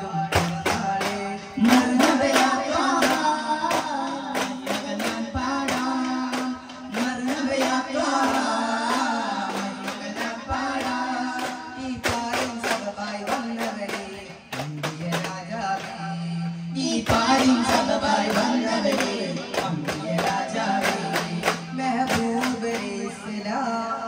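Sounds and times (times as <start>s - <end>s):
frame drums struck: 0.0s - 16.0s
person singing: 0.0s - 24.0s.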